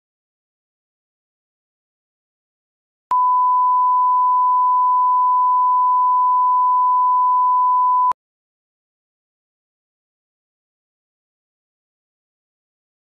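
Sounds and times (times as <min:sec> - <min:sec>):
pure test tone beep: 0:03.1 - 0:08.2.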